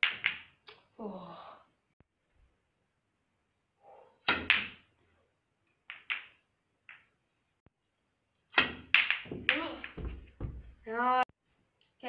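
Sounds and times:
snooker balls knocking together: 0:08.5 - 0:10.8.

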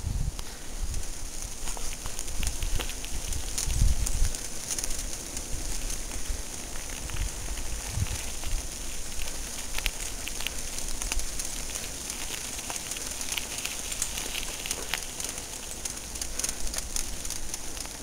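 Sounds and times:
bicycle tyres on gravel: 0:00.0 - 0:18.0.

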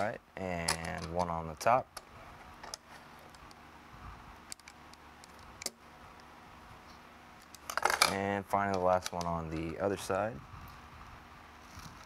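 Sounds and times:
metal screws and driver clicking: 0:04.5 - 0:05.8.

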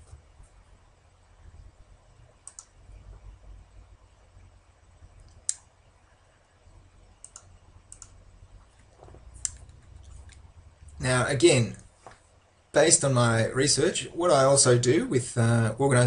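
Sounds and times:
low steady hum: 0:00.0 - 0:16.0
computer mouse clicks: 0:02.4 - 0:03.2, 0:07.2 - 0:08.2, 0:09.0 - 0:10.4.

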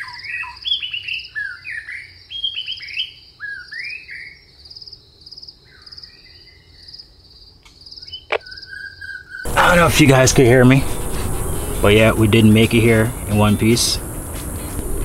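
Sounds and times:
insects trilling: 0:02.2 - 0:15.0
birds chirping: 0:07.8 - 0:15.0.

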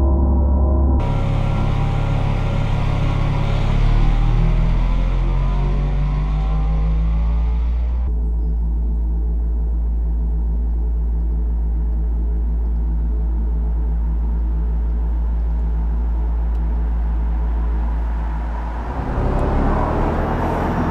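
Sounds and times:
electric car low hum: 0:00.0 - 0:20.9
road noise rush: 0:00.9 - 0:08.1, 0:13.6 - 0:20.9.

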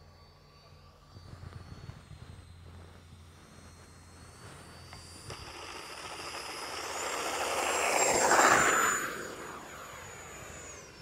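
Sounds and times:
rc jet fan whine: 0:00.0 - 0:11.0.

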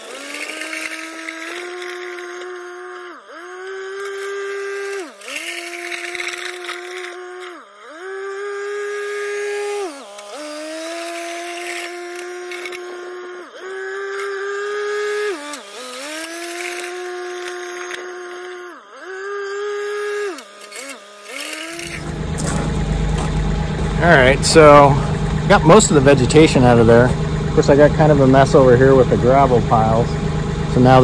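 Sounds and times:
box blade dragging through gravel: 0:00.0 - 0:02.5, 0:03.9 - 0:07.8, 0:08.5 - 0:13.0, 0:15.3 - 0:18.0, 0:20.3 - 0:24.8
tractor engine under load: 0:00.0 - 0:02.7, 0:19.6 - 0:31.0.

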